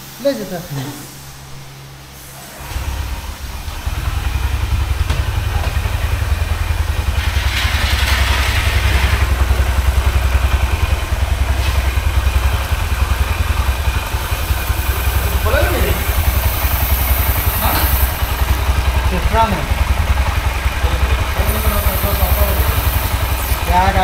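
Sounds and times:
motorcycle engine starting and idling: 0:02.5 - 0:24.0
spray can hissing: 0:11.0 - 0:19.2, 0:21.2 - 0:24.0.

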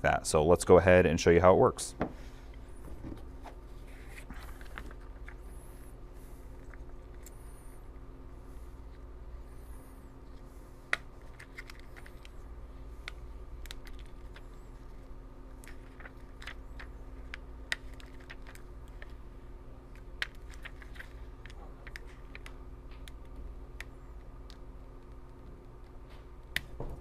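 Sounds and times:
faint steady hum: 0:00.0 - 0:27.0
vinyl peeling crackles: 0:10.3 - 0:26.7.

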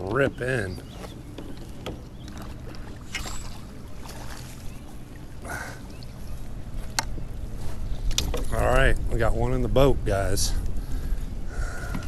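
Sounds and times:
water rushing along kayak: 0:00.0 - 0:12.0
small knocks and clicks: 0:01.0 - 0:02.9, 0:08.0 - 0:08.6.

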